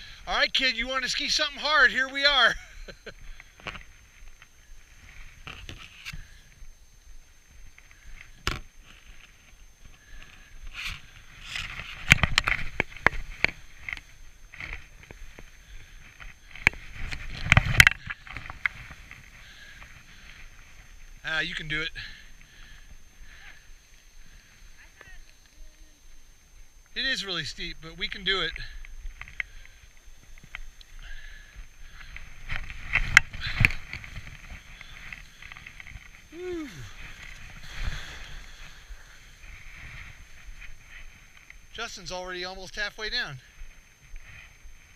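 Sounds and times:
sharp knocks and crackles: 10.6 - 15.5, 16.1 - 20.0
skis scraping on snow: 31.9 - 44.9.

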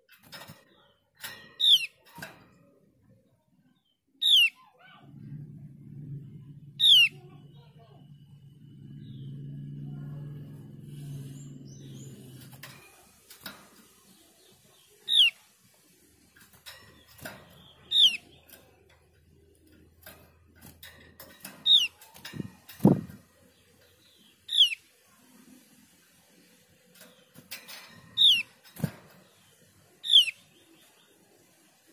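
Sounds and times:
low hum: 5.0 - 13.8
bird hopping in wire cage: 8.8 - 30.7.

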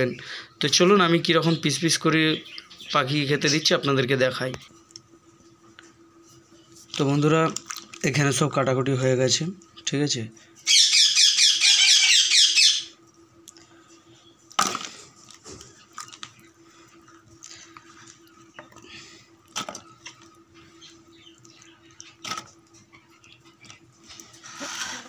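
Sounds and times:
faint steady hum: 0.0 - 25.0
parrot screeching: 10.7 - 12.9.

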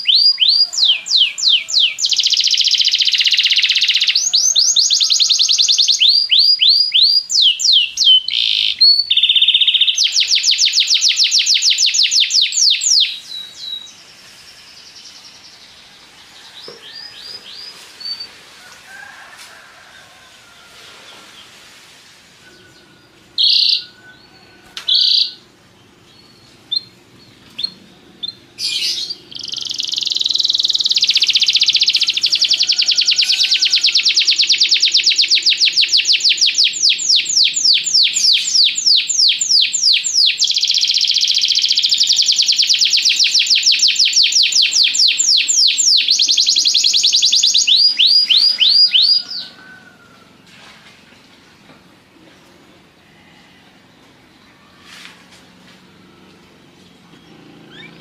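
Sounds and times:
canary singing trills: 0.0 - 15.8, 22.4 - 49.7, 55.9 - 58.0.

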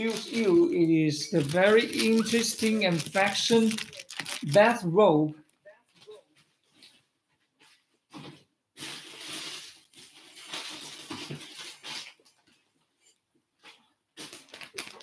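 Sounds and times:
fabric rustling and crinkling: 0.0 - 4.6.

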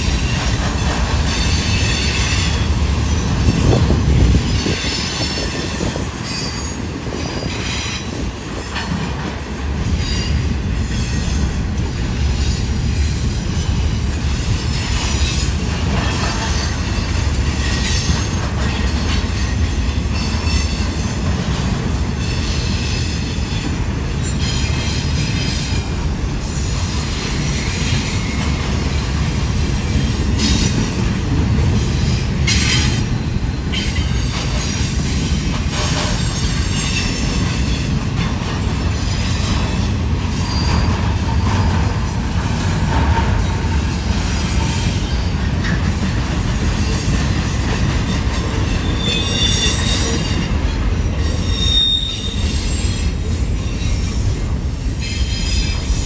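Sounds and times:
freight train wheels rumbling: 0.0 - 56.0
high-pitched wheel squeal: 48.6 - 50.4, 51.3 - 54.1.

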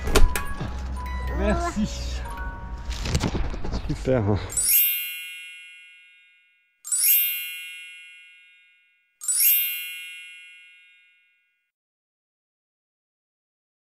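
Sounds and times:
bright bell-like chime: 4.5 - 11.7.

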